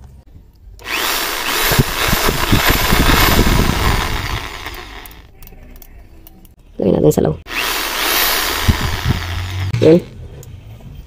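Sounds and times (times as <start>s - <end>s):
impact drill running: 0.8s - 5.2s, 7.5s - 9.7s.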